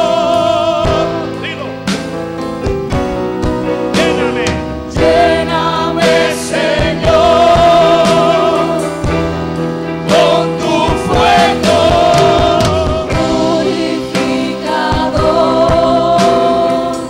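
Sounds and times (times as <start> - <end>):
backing singers: 0.0 - 2.1, 3.4 - 17.0
keyboard sustained chords: 0.0 - 17.0
man singing lead: 3.7 - 8.8, 10.3 - 14.3.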